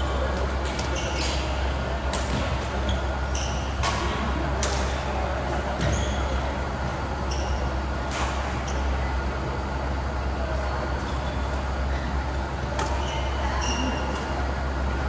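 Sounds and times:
court shoes squeaking: 0.0 - 9.2, 10.6 - 15.0
steady low hum: 0.0 - 15.0.

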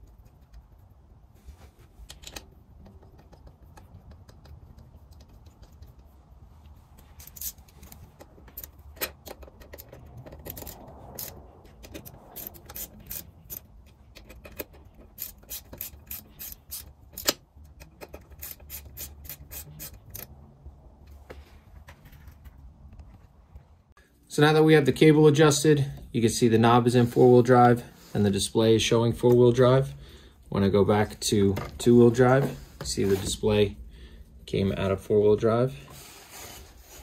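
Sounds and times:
hand tools clicking and scraping: 1.9 - 20.4.

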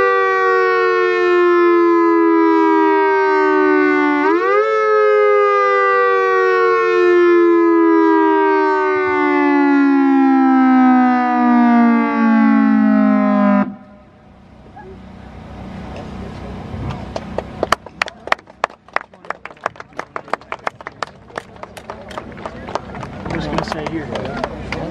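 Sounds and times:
warning siren sliding down: 0.0 - 14.4
people clapping: 17.0 - 24.9.

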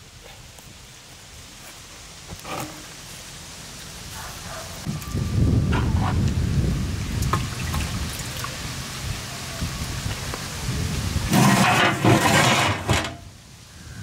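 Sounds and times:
gushing pour: 7.2 - 8.7.

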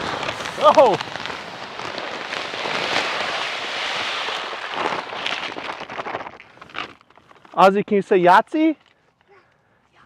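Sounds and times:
pellets pouring into metal hopper: 0.0 - 6.1.

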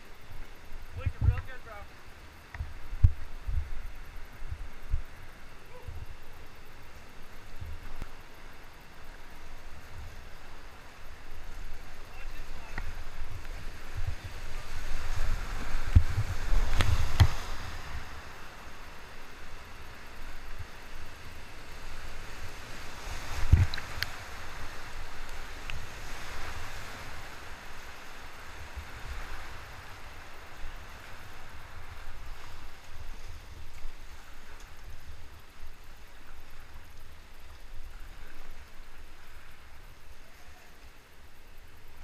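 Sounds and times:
rushing whitewater: 0.0 - 42.0
wind buffeting microphone: 2.6 - 6.3, 12.7 - 18.4, 20.4 - 35.8.

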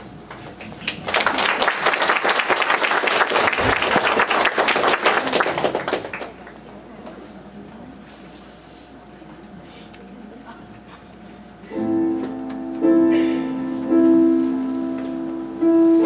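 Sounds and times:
audience applauding: 0.8 - 6.6.

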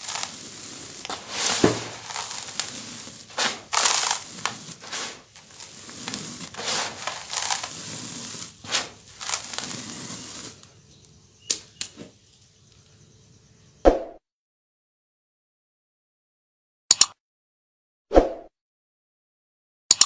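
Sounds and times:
sand pouring from hands: 0.0 - 10.8
sharp clicks: 16.9 - 17.2.

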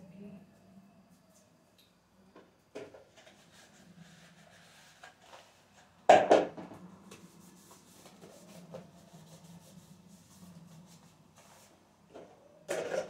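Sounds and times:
faint rubbing: 3.2 - 5.8, 7.2 - 11.9.

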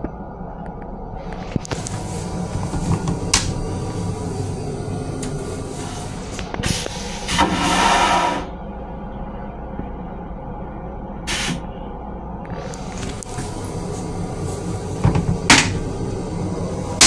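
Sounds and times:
railcar rumble: 0.0 - 17.0
vacuum toilet flush whoosh: 7.1 - 8.5.

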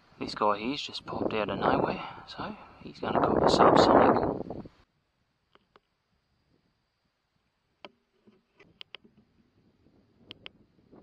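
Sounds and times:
faint click: 10.2 - 10.6.

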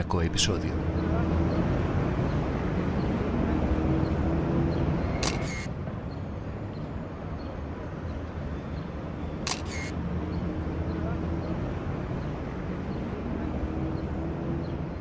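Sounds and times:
low hum of street noise: 0.0 - 15.0
camera shutter clicking: 5.2 - 5.7, 9.5 - 9.9.

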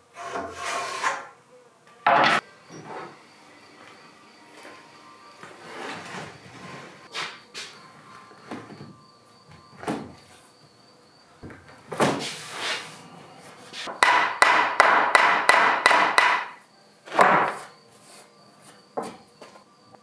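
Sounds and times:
hammer knocking wooden boards: 13.9 - 17.6.

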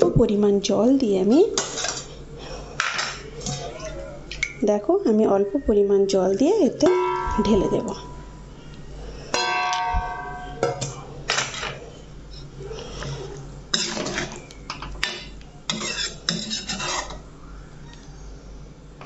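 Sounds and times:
spoon scraping a metal pan: 13.7 - 14.4, 15.7 - 17.2.

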